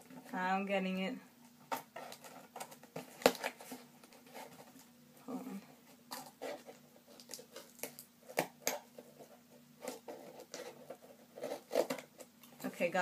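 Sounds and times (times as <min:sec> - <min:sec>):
packaging crinkling: 0:06.1 - 0:09.1.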